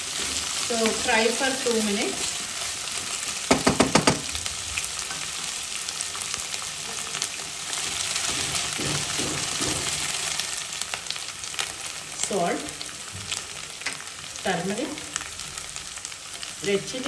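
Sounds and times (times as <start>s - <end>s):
vegetables sizzling in hot oil: 0.0s - 17.0s
spatula knocking on pot: 3.5s - 4.3s, 8.3s - 10.1s.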